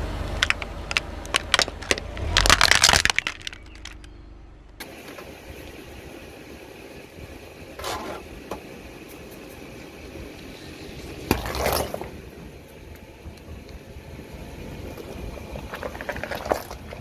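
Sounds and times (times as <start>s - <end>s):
low rumble of car: 0.0s - 17.0s
car tyre crushing something brittle: 0.2s - 4.2s, 11.2s - 12.2s, 15.0s - 17.0s.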